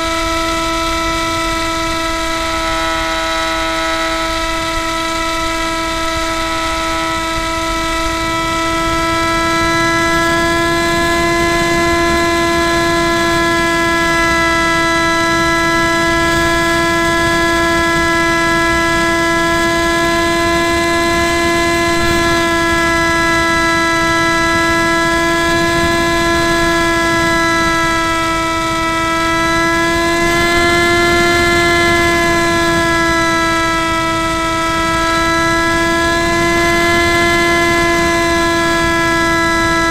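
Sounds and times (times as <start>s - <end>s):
electric motor and propeller whine: 0.0s - 39.9s
low wind rush: 0.0s - 39.9s.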